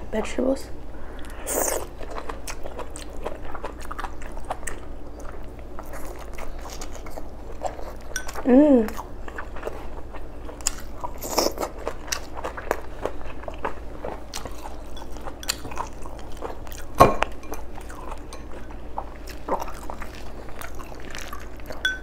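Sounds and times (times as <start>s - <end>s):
chewing and biting: 1.2s - 22.0s.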